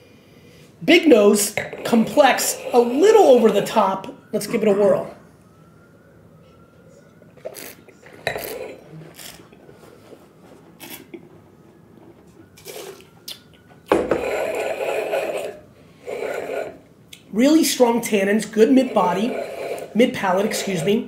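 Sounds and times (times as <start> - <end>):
sipping and slurping wine: 7.4 - 9.4, 12.6 - 13.4, 14.1 - 16.8.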